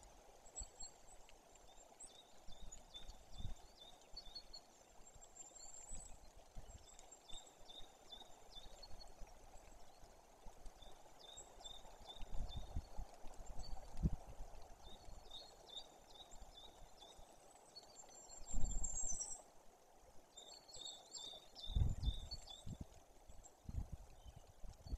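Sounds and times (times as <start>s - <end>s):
songbird singing: 0.5s - 9.2s, 14.8s - 19.5s, 20.3s - 24.9s.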